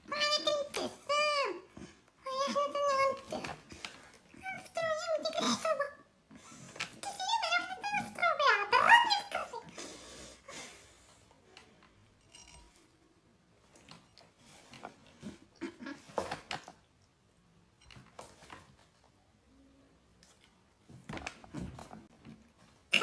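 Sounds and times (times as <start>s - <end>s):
small clicks and rustles: 16.1s - 19.2s.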